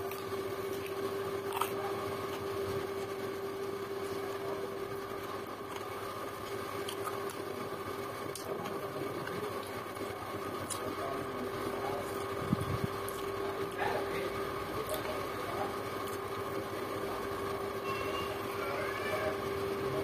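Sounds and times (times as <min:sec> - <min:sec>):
chewing: 0:00.0 - 0:03.2, 0:05.5 - 0:07.6, 0:08.2 - 0:09.8, 0:10.5 - 0:11.0, 0:13.0 - 0:13.8
steady background hum: 0:00.0 - 0:20.0.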